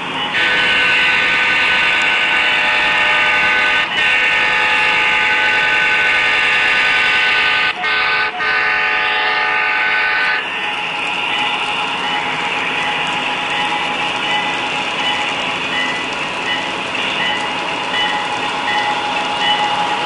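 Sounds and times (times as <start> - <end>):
toy train air horn blasts: 0.3 - 10.5.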